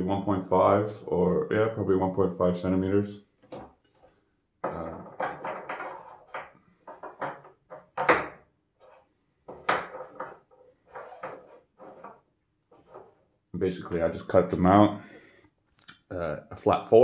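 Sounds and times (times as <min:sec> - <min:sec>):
concrete blocks knocking and scraping: 0:03.4 - 0:13.3.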